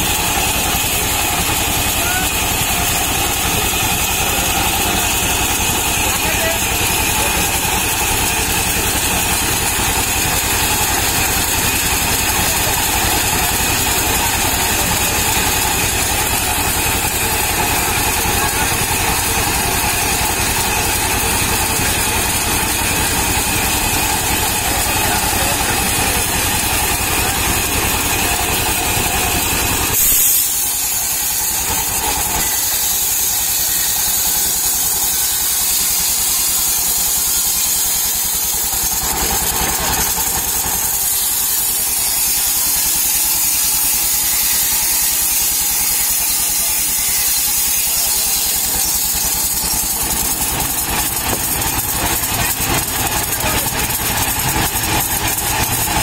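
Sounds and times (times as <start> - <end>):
band saw cutting log: 0.0 - 56.0
engine thrumming: 49.1 - 56.0.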